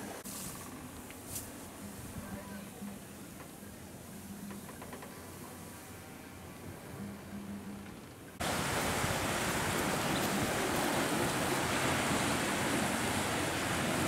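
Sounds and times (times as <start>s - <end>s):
wind: 0.0s - 14.0s
sea surf washing over rocks: 8.4s - 14.0s.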